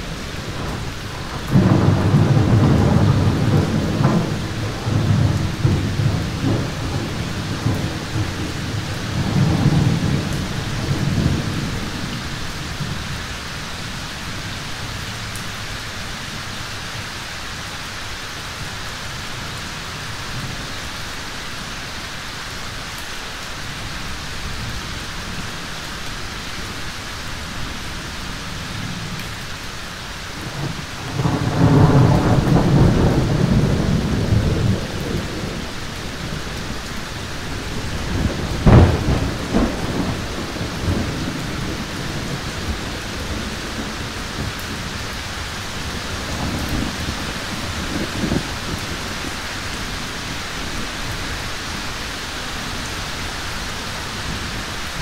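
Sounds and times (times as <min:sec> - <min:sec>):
rolling thunder: 0:00.0 - 0:13.2, 0:30.4 - 0:51.1
rain hissing: 0:00.0 - 0:55.0.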